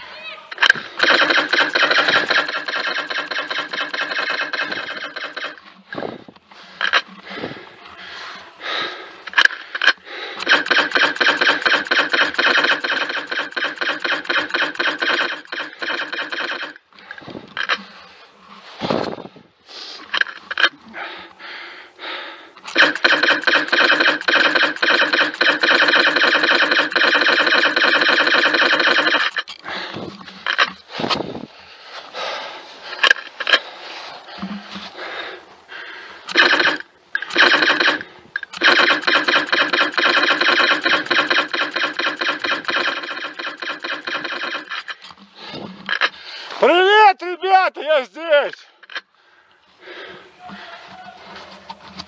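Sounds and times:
airsoft rifle full-auto bursts: 0:00.6 - 0:05.9, 0:09.3 - 0:16.9, 0:22.7 - 0:29.5, 0:36.3 - 0:45.1
laser tag gun clicks: 0:22.7 - 0:29.4.

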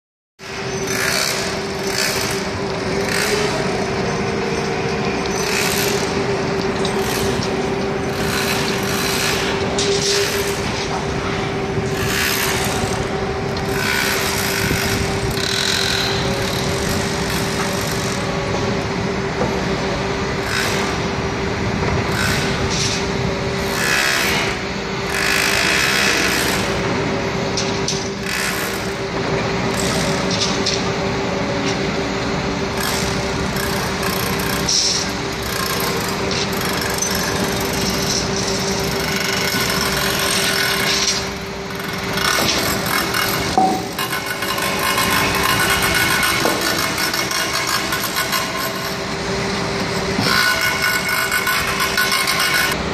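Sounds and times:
diesel engine noise: 0:00.4 - 0:52.9
steady machine whine: 0:00.4 - 0:52.9
rattling and clanking: 0:33.8 - 0:49.0.

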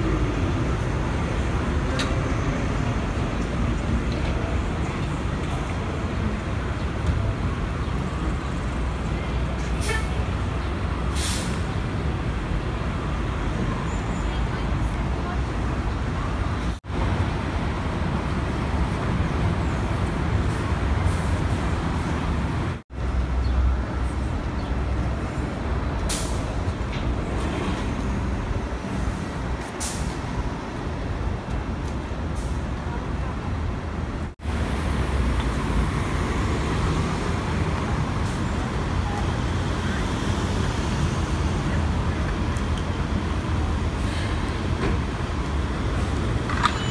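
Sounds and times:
bus diesel engines rumbling: 0:00.0 - 0:46.9
city street traffic: 0:00.0 - 0:46.9
air brake hisses: 0:11.1 - 0:11.6.

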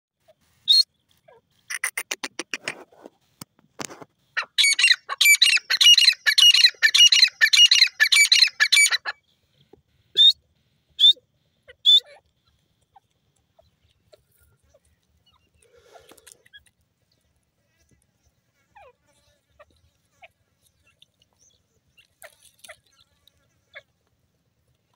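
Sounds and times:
short bird calls: 0:00.6 - 0:02.8
francolin ringing calls: 0:01.7 - 0:02.4, 0:04.5 - 0:09.2.

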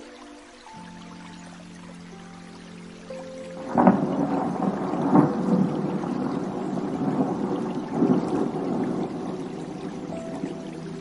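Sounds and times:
thunder clap: 0:03.6 - 0:10.6
rolling thunder rumble: 0:03.6 - 0:11.0.

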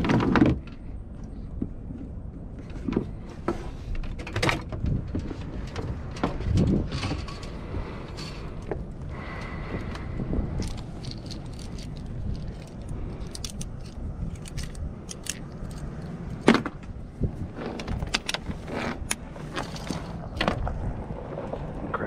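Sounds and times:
metal rigging hardware clinking: 0:10.6 - 0:16.5.

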